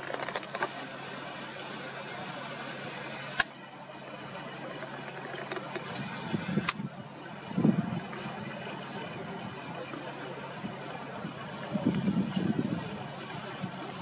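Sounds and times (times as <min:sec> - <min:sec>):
river water trickling: 0:00.0 - 0:14.0
sharp clicks: 0:05.2 - 0:06.9.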